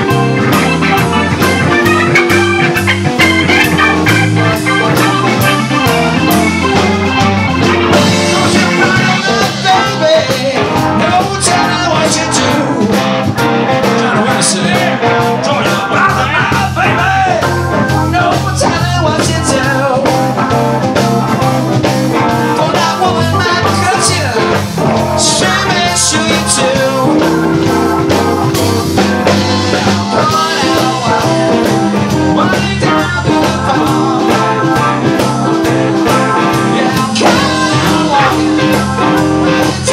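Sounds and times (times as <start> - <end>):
live blues band playing: 0.0 - 39.9
man singing: 7.8 - 21.5, 22.2 - 28.1, 29.2 - 39.9.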